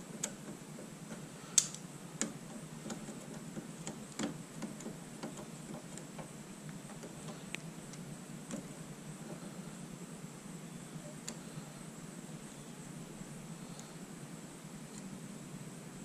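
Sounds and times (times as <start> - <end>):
small metallic clicks and taps: 0.1 - 8.7.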